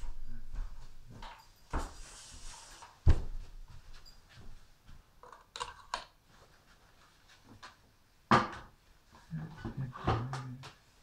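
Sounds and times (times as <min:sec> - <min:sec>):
objects knocking and clattering: 0:05.2 - 0:06.2.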